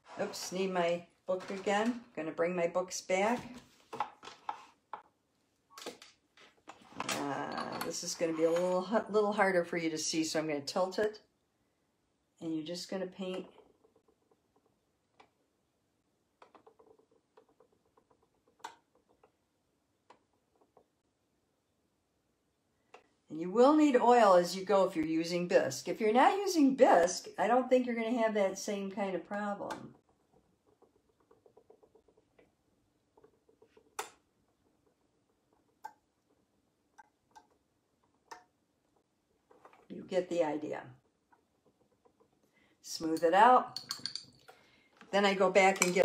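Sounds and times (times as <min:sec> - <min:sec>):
small clicks and taps on porcelain: 0:43.7 - 0:44.6.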